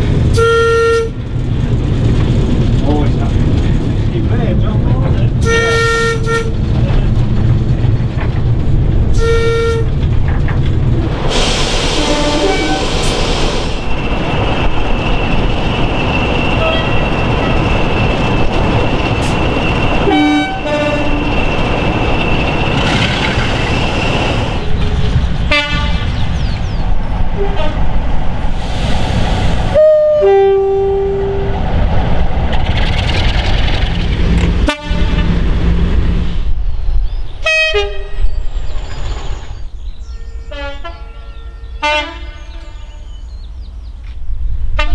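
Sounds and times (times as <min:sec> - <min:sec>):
locomotive engines running: 0:00.0 - 0:27.6, 0:31.4 - 0:36.4
trains on rails: 0:00.0 - 0:44.9
diesel locomotive horn blasts: 0:00.3 - 0:01.2, 0:05.4 - 0:06.6, 0:09.1 - 0:10.0, 0:12.0 - 0:13.1, 0:16.6 - 0:17.0, 0:20.0 - 0:21.3, 0:25.5 - 0:26.1, 0:27.4 - 0:27.9, 0:29.7 - 0:31.5, 0:34.6 - 0:35.4, 0:37.4 - 0:38.2, 0:40.1 - 0:43.2.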